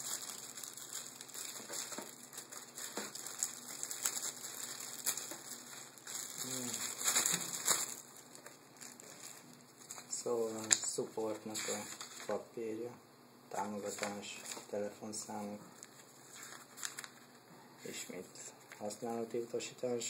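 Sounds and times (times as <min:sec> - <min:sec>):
paper leaflets rustling: 0:00.0 - 0:12.4, 0:13.8 - 0:19.0
plastic bag crinkling: 0:00.0 - 0:12.4, 0:15.8 - 0:17.3.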